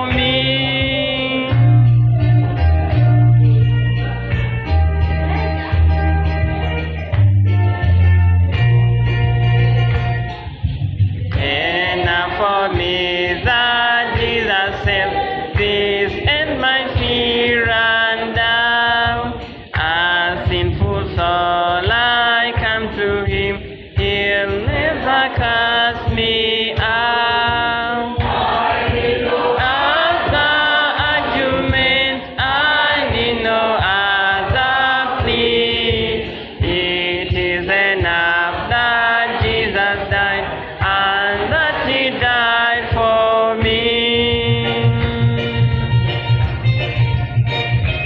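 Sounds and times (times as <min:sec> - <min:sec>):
steady low beat: 0:00.0 - 0:48.0
voices singing a hymn: 0:11.3 - 0:44.7.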